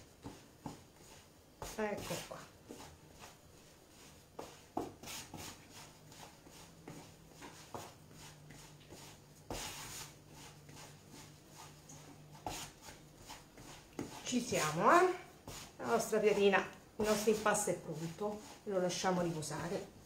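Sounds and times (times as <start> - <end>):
hands kneading dough on board: 0.0 - 20.0.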